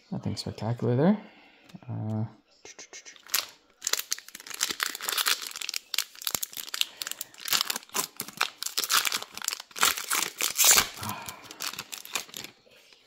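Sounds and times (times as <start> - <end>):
foil wrapper crinkling and tearing: 3.2 - 12.6.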